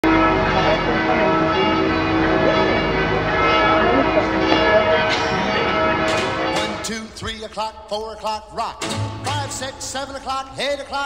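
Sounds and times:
bells ringing: 0:00.0 - 0:07.7.

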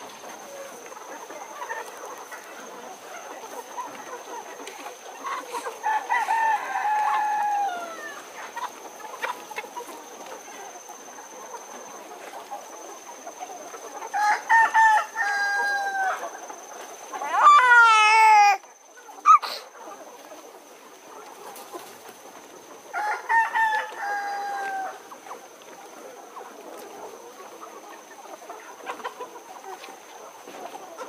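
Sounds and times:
rooster crowing: 0:05.8 - 0:08.2, 0:14.2 - 0:16.2, 0:22.9 - 0:25.0.

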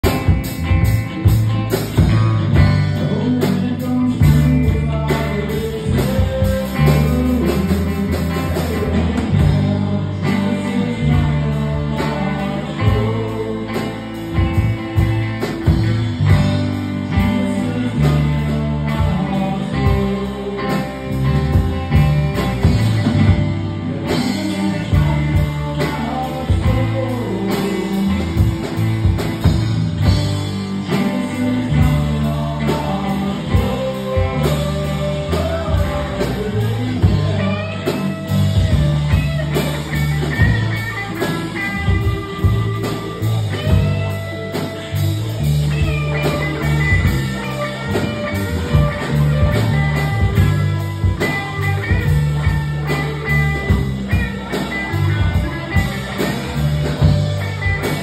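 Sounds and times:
bass guitar: 0:00.0 - 0:58.0
drum kit: 0:00.0 - 0:58.0
electric guitars: 0:00.0 - 0:58.0
man singing: 0:00.0 - 0:58.0.

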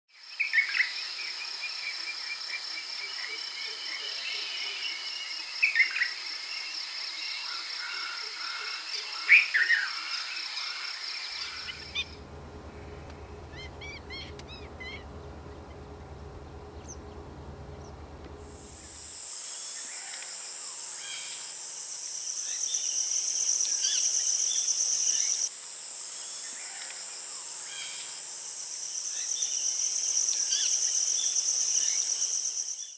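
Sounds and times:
loud high insect drone: 0:04.5 - 0:32.9
low rumble: 0:11.4 - 0:19.2.

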